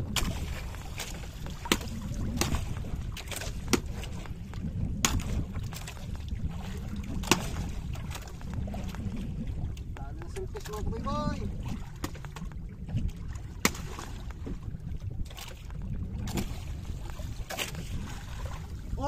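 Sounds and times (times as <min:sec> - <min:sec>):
knocks on boat: 0:00.0 - 0:05.9
water around boat: 0:00.0 - 0:19.0
wind: 0:00.0 - 0:19.0.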